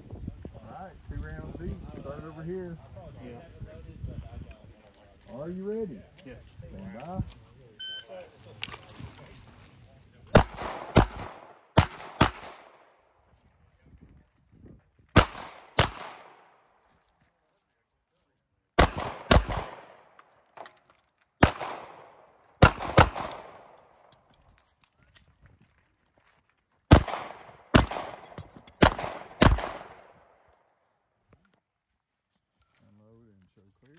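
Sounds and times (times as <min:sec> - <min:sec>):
handgun shots with echo: 0:10.4 - 0:12.7, 0:15.2 - 0:16.4, 0:18.8 - 0:19.9, 0:21.4 - 0:23.7, 0:26.9 - 0:30.0.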